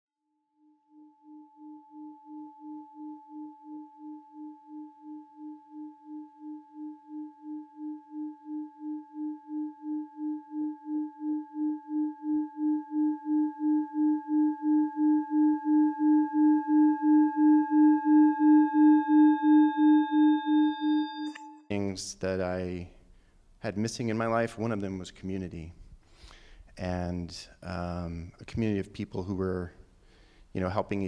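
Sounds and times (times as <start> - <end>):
singing bowl ringing: 0.6 - 21.7.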